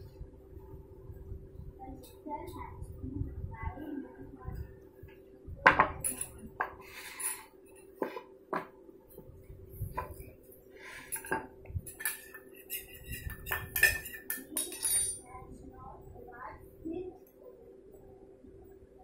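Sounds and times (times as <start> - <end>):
metal spoon scraping steel bowl: 6.0 - 7.5, 11.0 - 15.2.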